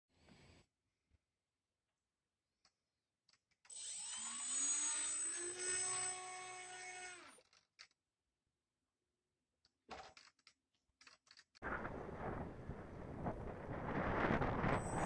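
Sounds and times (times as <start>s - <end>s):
electric motor whine: 3.7s - 7.2s.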